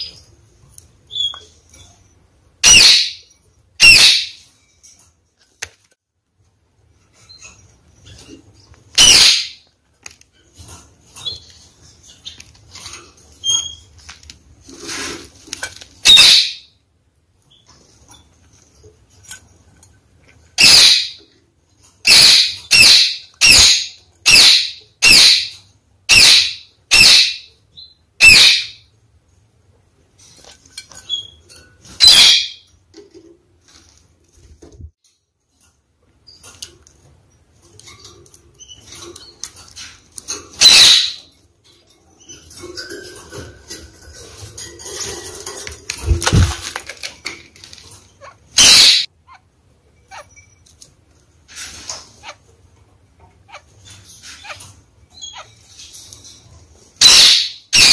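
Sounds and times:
parakeet calling: 0:02.6 - 0:04.5, 0:09.0 - 0:09.7, 0:16.0 - 0:16.7, 0:20.6 - 0:21.2, 0:22.0 - 0:28.8, 0:32.0 - 0:32.7, 0:40.5 - 0:41.3, 0:48.2 - 0:49.5, 0:50.1 - 0:50.6, 0:51.7 - 0:52.5, 0:53.4 - 0:55.9, 0:57.0 - 0:57.9
loud rustling burst: 0:45.2 - 0:47.1.

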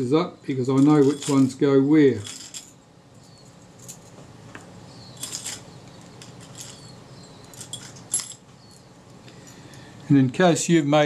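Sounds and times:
small metal parts clicking: 0:00.7 - 0:01.6, 0:02.2 - 0:04.2, 0:05.1 - 0:08.9.

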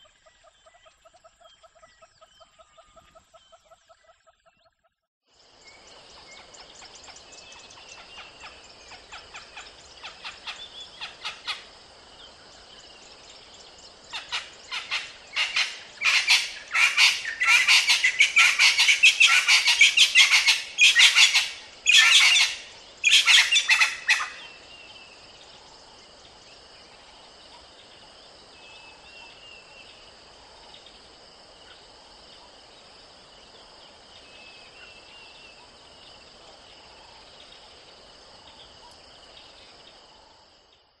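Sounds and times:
francolin calling: 0:14.1 - 0:25.1.

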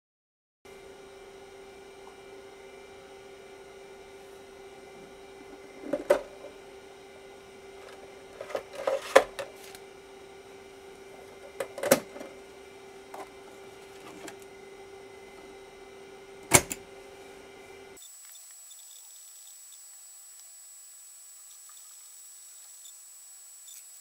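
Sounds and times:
steady hum: 0:00.7 - 0:18.0
disk drive clunk: 0:05.4 - 0:06.6, 0:07.8 - 0:09.9, 0:11.2 - 0:12.4, 0:13.1 - 0:14.5, 0:16.4 - 0:16.9.

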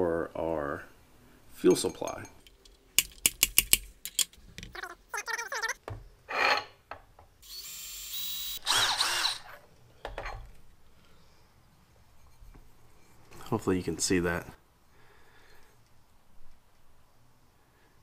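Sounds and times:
cordless drill drilling metal: 0:07.4 - 0:09.6.

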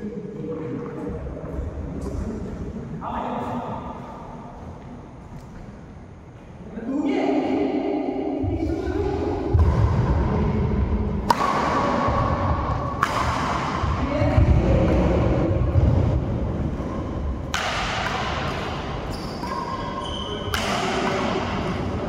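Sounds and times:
rackets striking shuttlecock: 0:11.2 - 0:15.9, 0:16.7 - 0:22.0.

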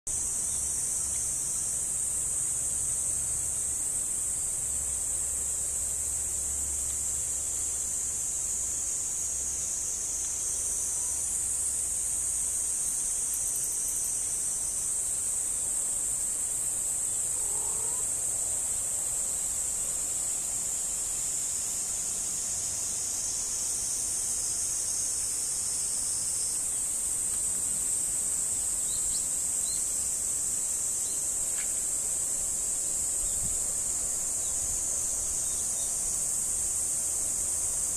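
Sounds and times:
insects chirping in grass: 0:00.1 - 0:37.9.

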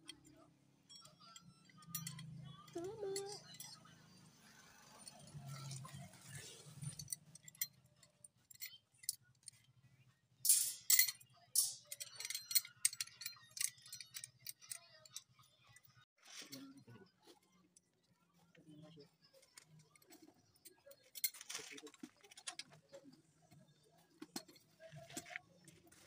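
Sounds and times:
metallic clicks and clinks: 0:00.0 - 0:09.8, 0:10.4 - 0:16.0, 0:19.4 - 0:23.6.

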